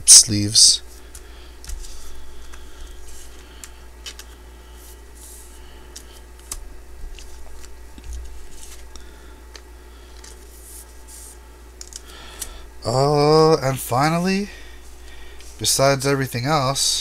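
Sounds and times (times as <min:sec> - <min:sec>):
plastic card sleeves swishing: 0:04.9 - 0:09.6.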